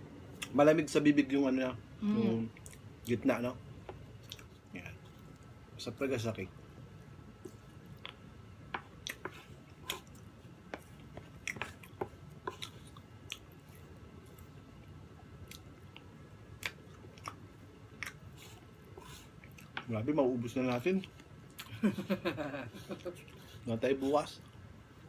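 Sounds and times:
people chewing soft cake: 0:02.3 - 0:03.2, 0:03.8 - 0:05.5, 0:07.3 - 0:24.6.

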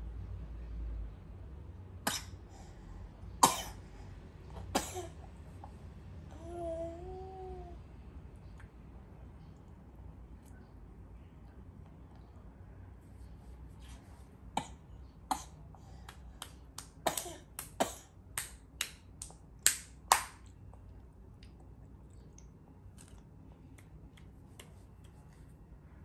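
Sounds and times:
toddler clapping hands: 0:16.1 - 0:17.8, 0:18.4 - 0:20.4.

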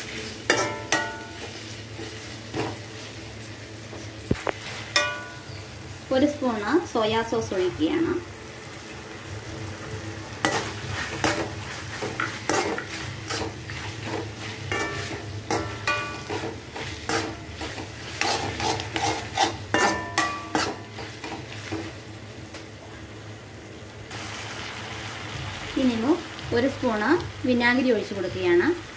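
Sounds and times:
food sizzling in pan: 0:00.0 - 0:28.9
pan ringing: 0:04.9 - 0:05.7, 0:14.7 - 0:16.4
metal spatula scraping metal pan: 0:10.4 - 0:21.8.

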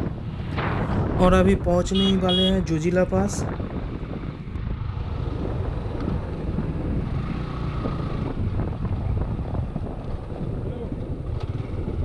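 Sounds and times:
wind rush on microphone: 0:00.0 - 0:12.0
motorcycle engine running: 0:03.8 - 0:12.0.

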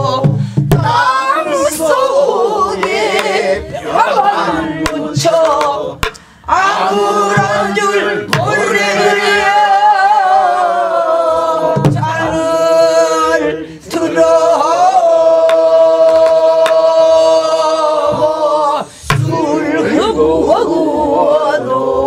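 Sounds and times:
barrel drum strokes: 0:00.0 - 0:01.2, 0:02.6 - 0:09.5, 0:19.0 - 0:19.7
group singing folk song: 0:00.0 - 0:22.0.

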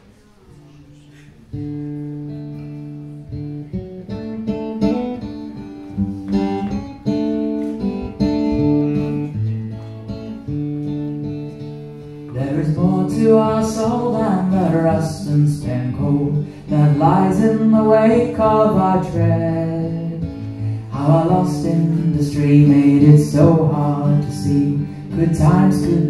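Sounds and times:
acoustic guitar chords: 0:00.0 - 0:26.0
man singing: 0:12.3 - 0:26.0.

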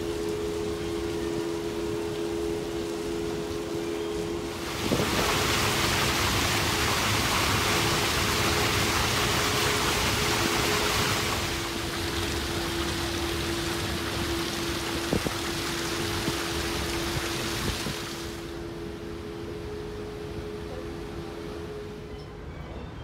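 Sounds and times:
constant hum: 0:00.0 - 0:23.0
steady rushing noise: 0:01.4 - 0:18.7.

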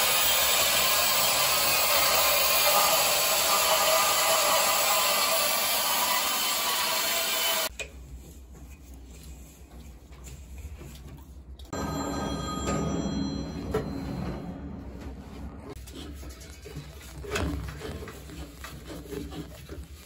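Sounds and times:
band saw cutting steel pipe: 0:00.0 - 0:07.7
low hum: 0:11.6 - 0:15.8.

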